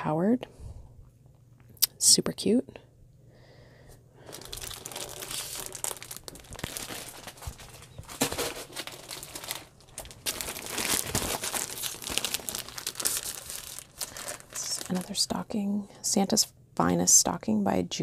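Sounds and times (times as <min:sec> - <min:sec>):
plastic packaging crinkling: 0:04.2 - 0:15.4.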